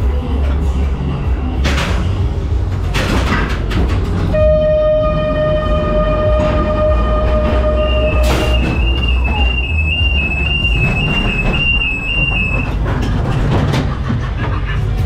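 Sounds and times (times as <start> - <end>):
ride car rumbling on track: 0.0 - 15.0
steady electronic tone: 4.4 - 12.6
two-note electronic warble: 4.4 - 12.6.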